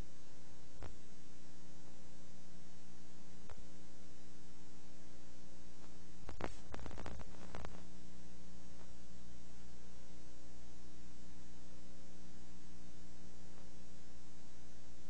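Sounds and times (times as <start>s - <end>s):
crackles and clicks: 0.0s - 1.2s, 3.2s - 3.8s, 5.6s - 9.1s
electrical hum and hiss: 0.0s - 15.0s.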